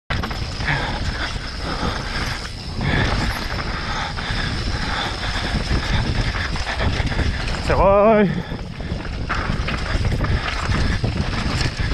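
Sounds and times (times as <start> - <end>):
low rumble: 0.1 - 11.9
mountain bike rattling downhill: 0.1 - 11.9
tyres crunching on loose stone: 5.5 - 11.9.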